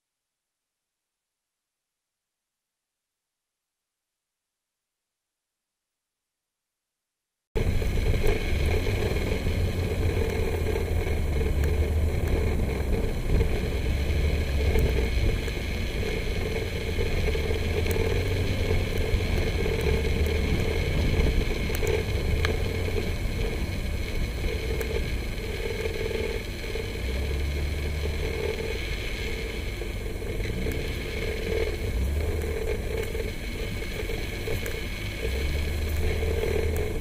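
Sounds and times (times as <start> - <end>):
engine and tyre rumble: 7.6 - 37.0
small ticks: 7.8 - 37.0.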